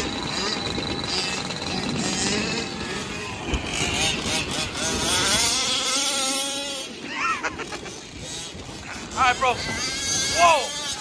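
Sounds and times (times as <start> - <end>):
small two-stroke engine revving: 0.0 - 11.0.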